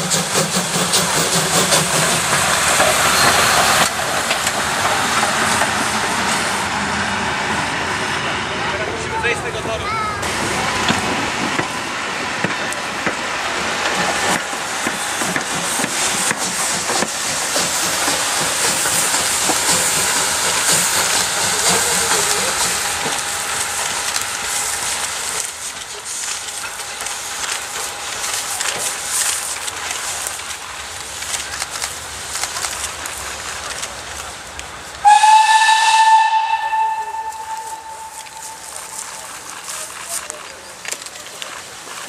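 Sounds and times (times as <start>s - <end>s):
steam hissing: 0.0s - 8.6s, 10.2s - 42.0s
steam locomotive running: 0.0s - 42.0s.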